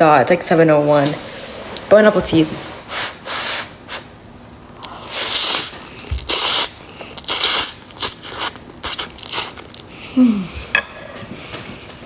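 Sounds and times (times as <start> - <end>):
person slurping noodles: 4.8 - 10.5.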